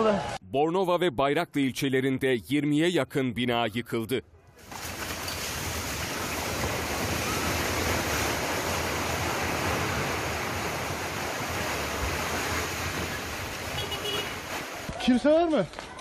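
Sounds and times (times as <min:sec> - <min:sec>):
rush of falling rubble: 0:04.6 - 0:16.0.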